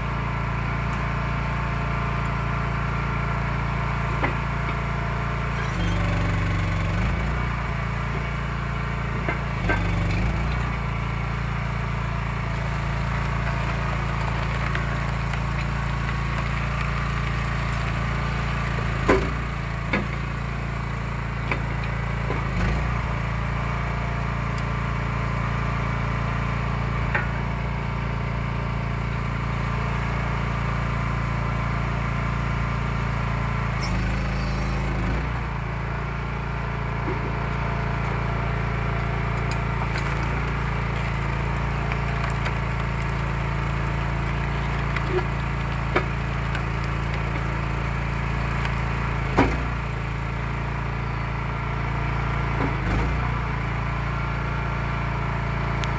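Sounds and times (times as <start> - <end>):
log splitter engine running: 0.0 - 55.9
wood cracking and dropping: 12.4 - 20.4, 37.2 - 49.9.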